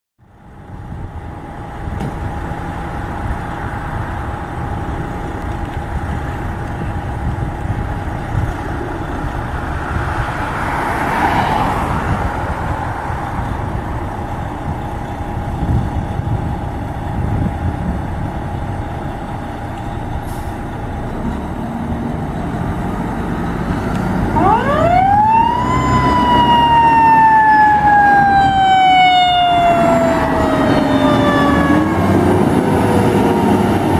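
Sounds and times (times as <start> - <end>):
diesel engine rumbling: 0.2 - 33.9
mechanical siren wailing: 24.2 - 33.9.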